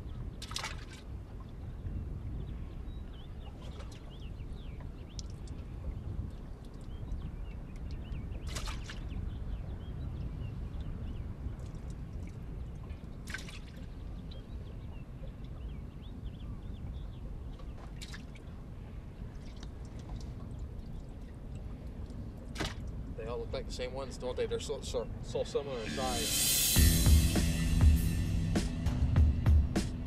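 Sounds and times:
water dripping and splashing: 0:00.4 - 0:01.6, 0:04.8 - 0:05.7, 0:06.3 - 0:09.1, 0:11.5 - 0:14.1, 0:17.6 - 0:18.6, 0:19.2 - 0:23.2.

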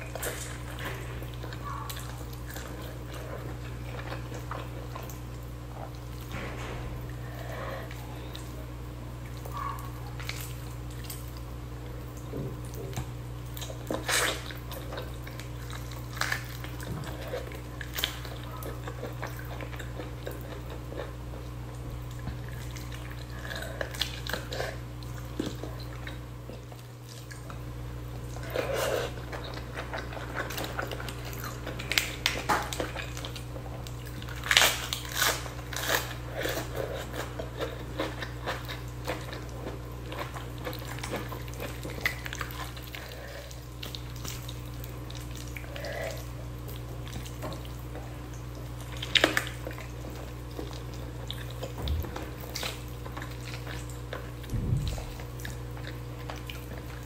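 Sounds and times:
meat tearing and chewing: 0:00.0 - 0:08.6, 0:12.2 - 0:57.0
low hum: 0:05.8 - 0:11.1, 0:54.2 - 0:56.8.

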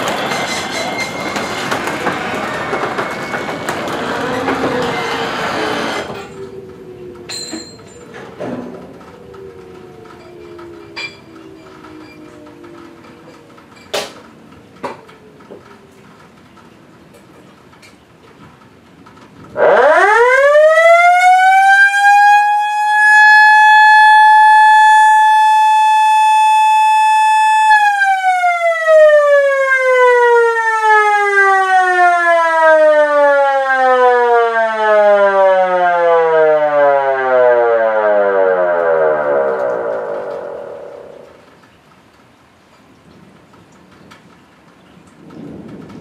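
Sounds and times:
warning siren winding up and down: 0:01.8 - 0:15.5, 0:19.6 - 0:41.4.

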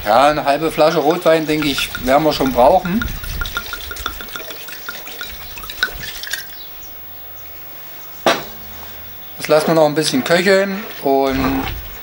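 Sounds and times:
wine pouring and splashing: 0:00.7 - 0:06.8
sizzling in a hot pot: 0:01.6 - 0:06.7.

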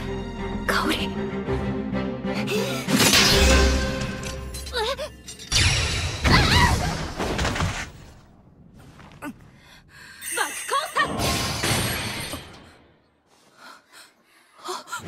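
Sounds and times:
dramatic soundtrack music: 0:00.0 - 0:05.4.

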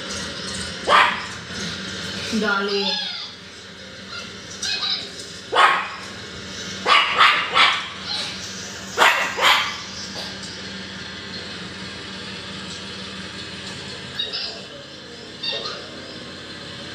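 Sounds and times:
steady low hum: 0:00.0 - 0:16.9
dog barking: 0:00.8 - 0:01.4, 0:05.5 - 0:06.1, 0:06.8 - 0:08.4, 0:09.0 - 0:10.4.

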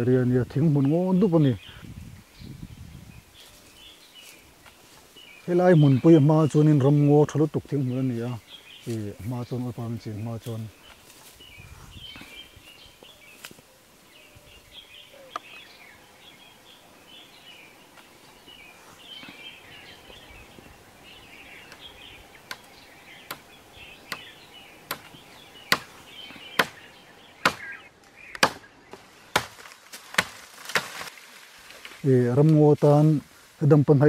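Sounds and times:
faint chirping: 0:00.0 - 0:29.3
blade chopping into wood: 0:27.4 - 0:27.7, 0:28.4 - 0:28.7.

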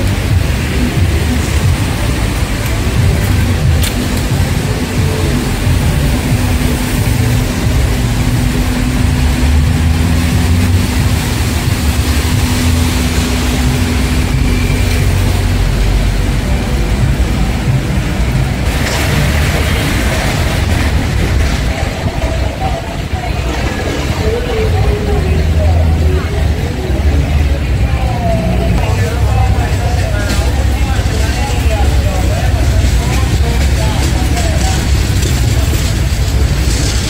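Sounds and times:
car engines rumbling: 0:00.0 - 0:37.0
traffic hiss on wet road: 0:00.0 - 0:37.0.

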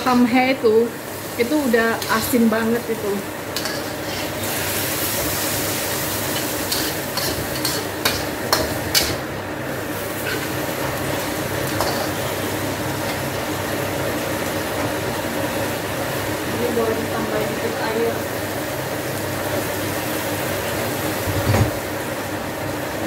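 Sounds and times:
meat sizzling in a wok: 0:00.0 - 0:23.0
metal spatula scraping a pan: 0:03.6 - 0:04.6, 0:06.4 - 0:09.2, 0:11.7 - 0:12.2.

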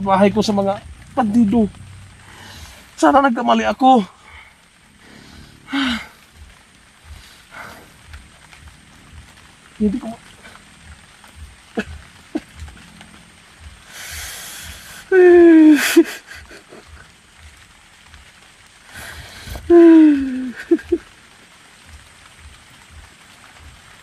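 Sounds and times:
man wailing in anguish: 0:15.1 - 0:16.1, 0:19.6 - 0:21.0.

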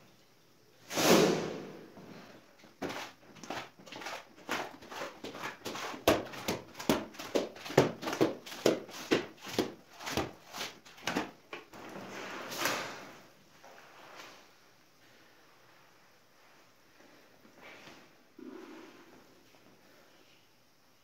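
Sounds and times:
squeegee swishing over wet tiles: 0:02.8 - 0:11.3.

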